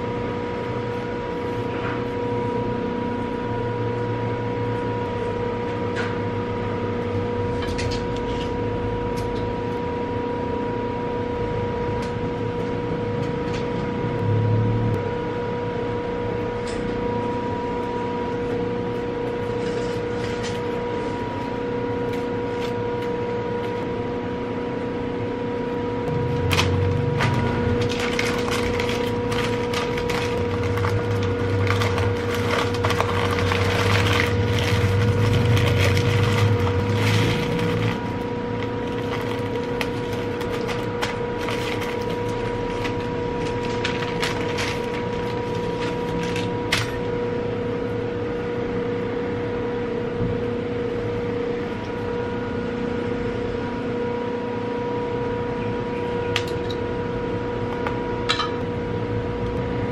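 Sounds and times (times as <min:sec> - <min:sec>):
steady hum: 0:00.0 - 0:59.9
paper rustling and crinkling: 0:26.4 - 0:47.0.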